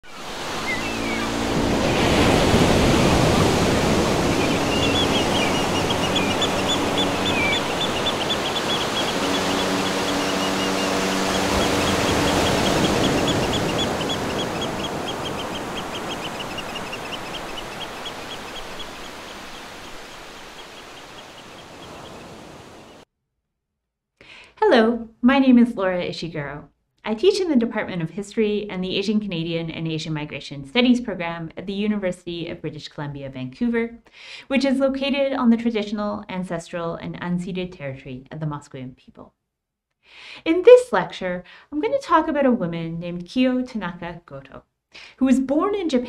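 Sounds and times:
ocean surf: 0.0 - 23.0.

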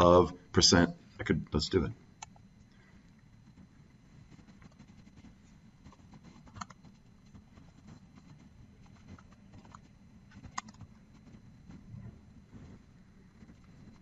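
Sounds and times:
typing on computer keyboard: 10.5 - 10.9.

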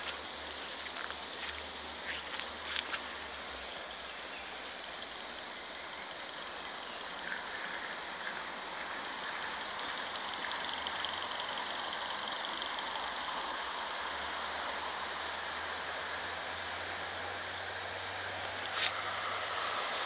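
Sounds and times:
model steam train rushing: 6.8 - 17.3.

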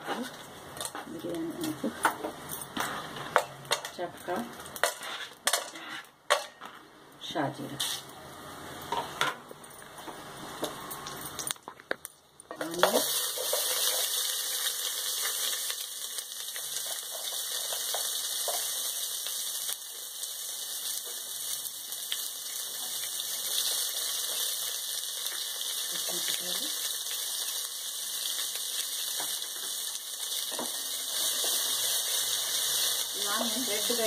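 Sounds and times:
onions sizzling in hot fat: 12.5 - 34.0.

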